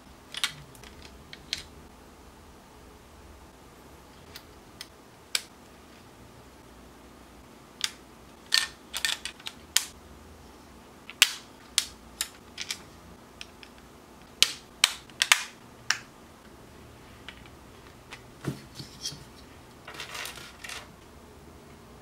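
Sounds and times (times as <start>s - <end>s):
plastic parts clicking: 0.3s - 1.7s, 7.8s - 9.9s, 11.1s - 12.8s, 14.4s - 16.1s.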